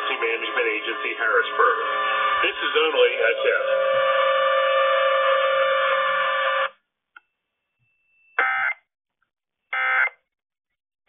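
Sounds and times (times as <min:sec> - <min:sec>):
scanner radio broadcast tone: 0:00.0 - 0:06.8.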